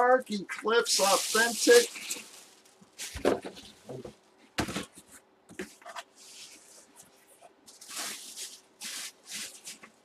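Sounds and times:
plastic bag rustling in a box: 0.9s - 3.9s, 7.7s - 10.0s.

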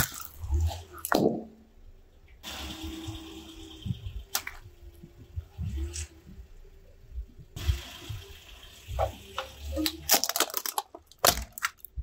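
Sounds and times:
sharp crack: 9.8s - 12.0s.

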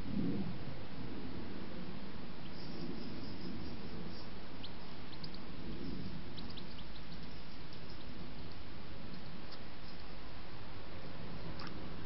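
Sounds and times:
steady background noise: 0.0s - 12.0s
high bird chirps: 2.4s - 8.6s.

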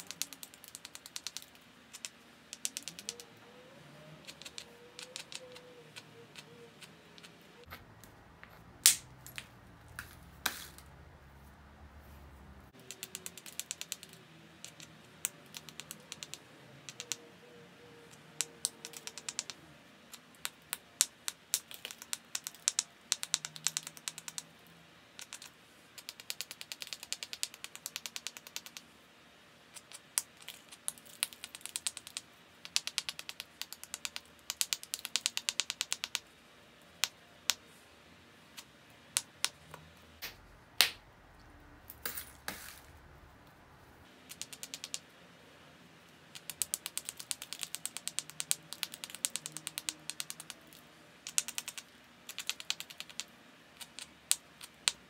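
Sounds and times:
stone tool clicking on flint: 0.0s - 3.3s, 4.2s - 7.4s, 12.8s - 17.3s, 18.1s - 24.5s, 25.2s - 28.9s, 29.8s - 36.2s, 44.3s - 45.0s, 46.3s - 55.0s.

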